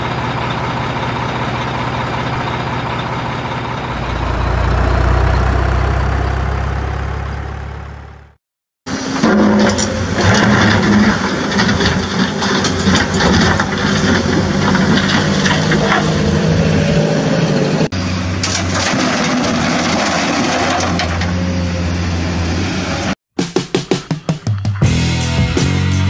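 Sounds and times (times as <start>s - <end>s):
truck engine running: 0.0s - 8.4s.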